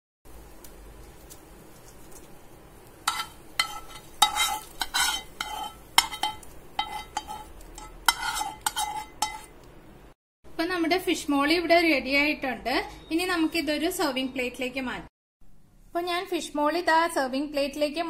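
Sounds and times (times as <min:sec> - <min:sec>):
metal spoon scraping a frying pan: 0:03.0 - 0:09.6.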